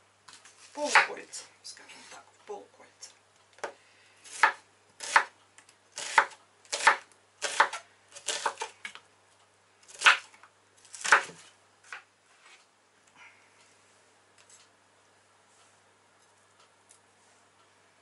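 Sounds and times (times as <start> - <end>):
knife slicing onion on wooden board: 3.6 - 5.4, 6.0 - 8.7, 9.9 - 10.3, 10.9 - 12.0.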